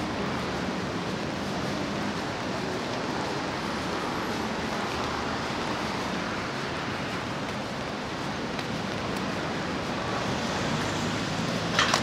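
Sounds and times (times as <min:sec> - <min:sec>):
traffic passing: 0:00.0 - 0:12.0.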